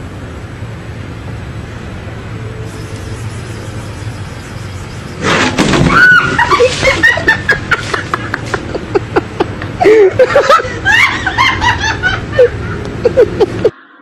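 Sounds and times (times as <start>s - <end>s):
sudden loud noise: 2.7s - 7.0s
people laughing and exclaiming: 5.9s - 13.7s.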